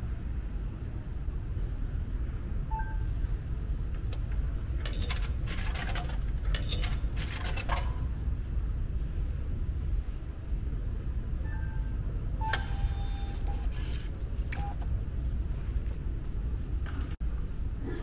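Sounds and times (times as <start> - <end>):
coins clinking through machine: 4.8 - 8.1.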